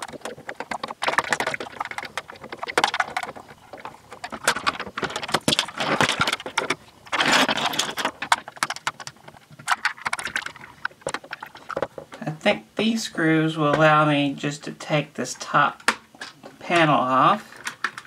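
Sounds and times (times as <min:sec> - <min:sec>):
plastic panel scraping: 0:00.0 - 0:12.3.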